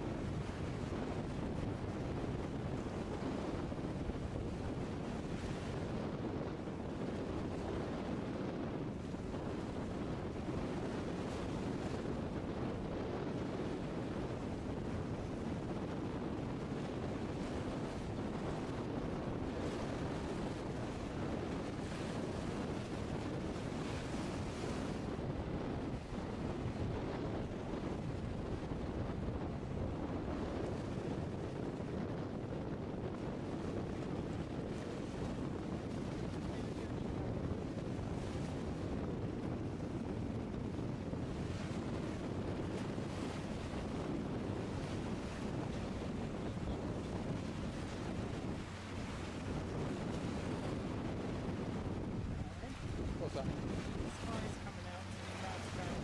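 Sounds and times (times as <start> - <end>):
open water wash: 0.0 - 56.0
wind buffeting microphone: 0.0 - 56.0
rushing water: 52.2 - 56.0.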